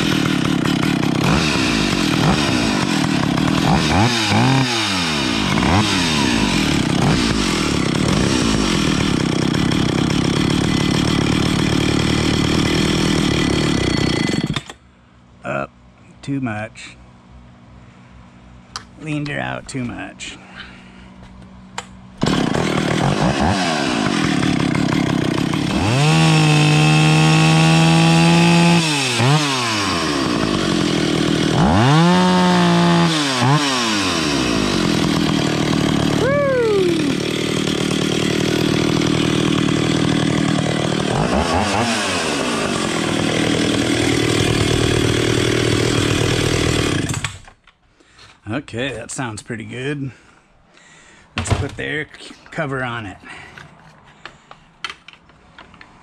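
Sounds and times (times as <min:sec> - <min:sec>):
chainsaw engine revving: 0:00.0 - 0:14.7, 0:22.2 - 0:47.5.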